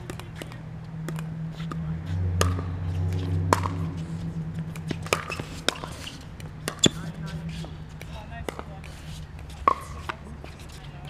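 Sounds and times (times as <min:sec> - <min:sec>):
steady low hum: 0:00.0 - 0:08.2.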